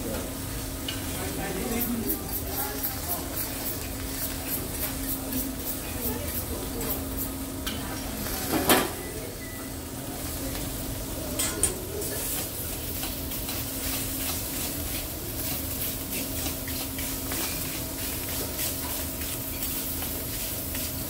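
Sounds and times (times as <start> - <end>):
food sizzling on griddle: 0.5 - 21.0.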